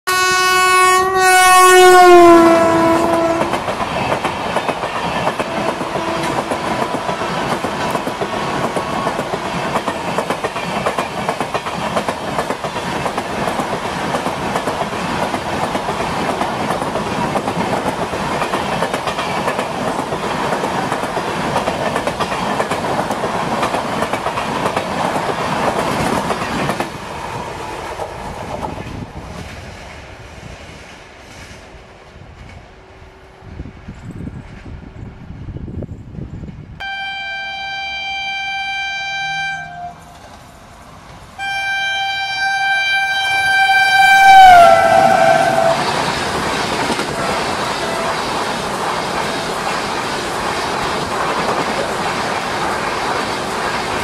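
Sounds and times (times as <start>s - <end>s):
locomotive horn: 0.1s - 3.6s, 5.4s - 7.4s, 36.8s - 40.2s, 41.4s - 46.0s, 47.2s - 48.2s
wheels clacking over rail joints: 3.1s - 29.9s, 44.9s - 54.0s.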